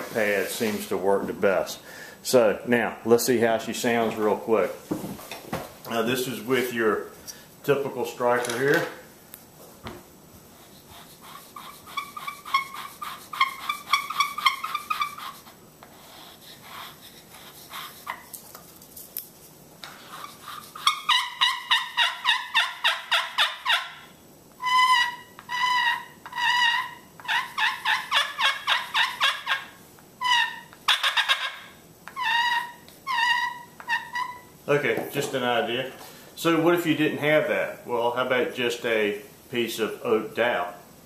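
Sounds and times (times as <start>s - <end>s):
turkey call yelps: 11.6s - 15.5s, 20.2s - 34.5s.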